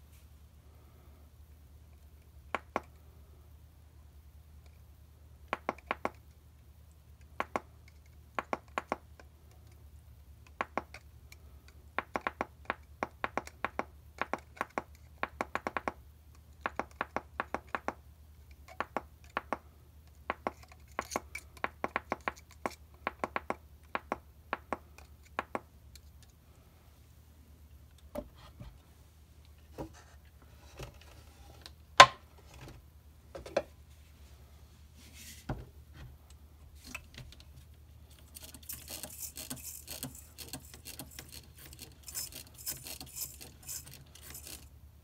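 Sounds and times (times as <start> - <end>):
small metal parts clicking: 38.1 - 44.7.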